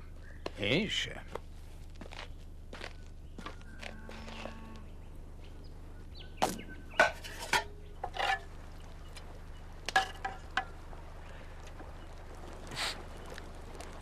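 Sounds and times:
metal utensils clinking on pot: 0:07.0 - 0:08.5.

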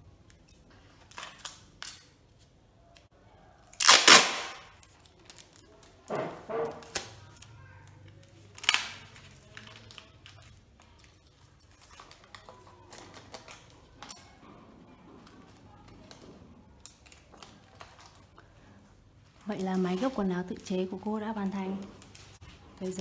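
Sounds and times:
packing tape ripping off roll: 0:03.8 - 0:07.5, 0:08.2 - 0:10.5.

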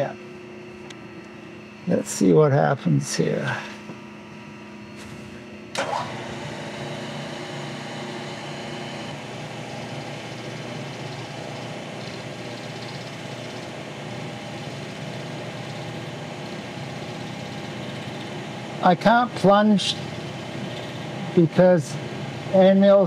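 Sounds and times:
milling machine cutting metal: 0:06.0 - 0:18.8, 0:19.8 - 0:21.4.

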